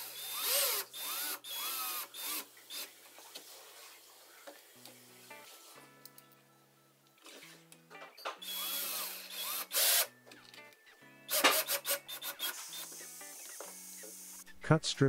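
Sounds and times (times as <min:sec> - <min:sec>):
cordless drill driving screws: 0:00.0 - 0:03.0, 0:08.4 - 0:10.1, 0:11.3 - 0:14.4
sharp clicks of drill: 0:11.3 - 0:14.4.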